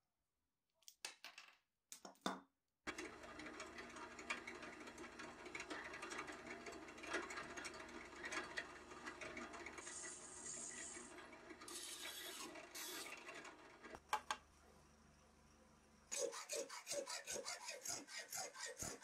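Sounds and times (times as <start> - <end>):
drill boring through metal: 9.8 - 13.4.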